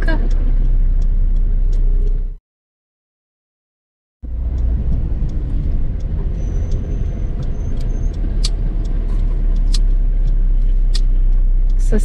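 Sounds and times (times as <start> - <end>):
car engine and road noise: 0.0 - 2.4, 4.2 - 12.0
sharp ticks: 4.2 - 12.0.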